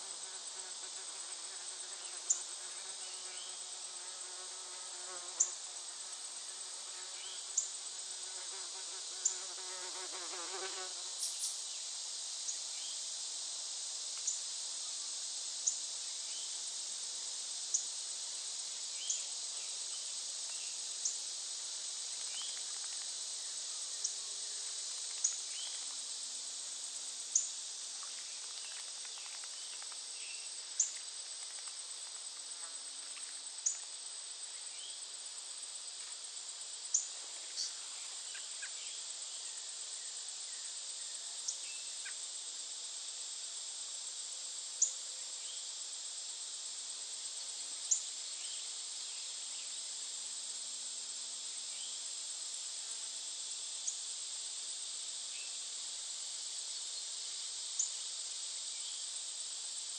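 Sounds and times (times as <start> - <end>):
insect chorus drone: 0.0 - 59.9.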